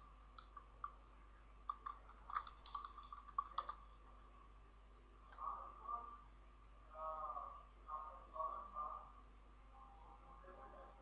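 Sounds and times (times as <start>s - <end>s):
keyboard keystrokes: 1.7s - 3.8s.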